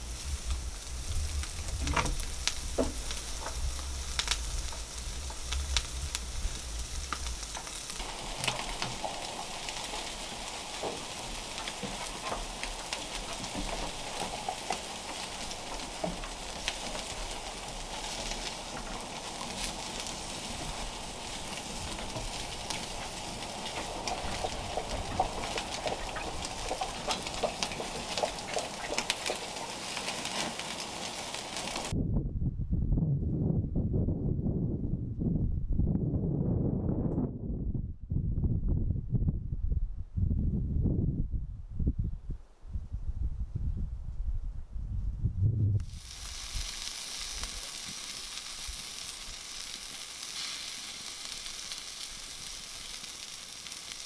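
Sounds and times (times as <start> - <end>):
low rumble: 0.0 - 8.2, 31.9 - 46.7
meat sizzling on a grill: 0.0 - 31.9, 45.8 - 54.0
fire pops and crackles: 0.0 - 32.0, 45.8 - 54.0.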